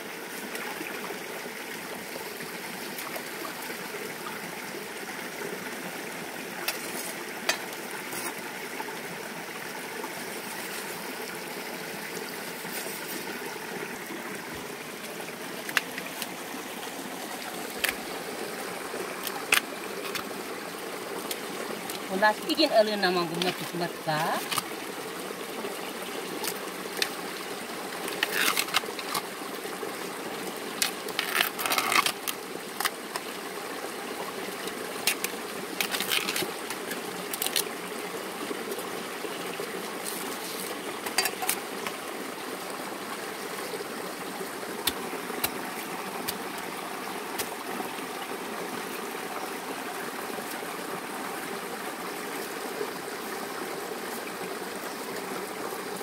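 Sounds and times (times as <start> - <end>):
stream water running: 0.0 - 56.0
bamboo snapping and crackling: 19.2 - 20.2, 24.4 - 24.7, 28.0 - 29.3, 30.8 - 33.3, 35.0 - 37.7, 44.8 - 46.5.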